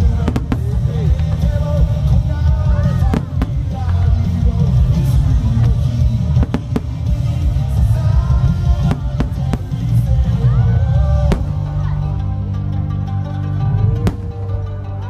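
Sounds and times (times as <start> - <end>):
deep rumble: 0.0 - 15.0
music playing: 0.0 - 15.0
fireworks bangs: 2.9 - 10.1.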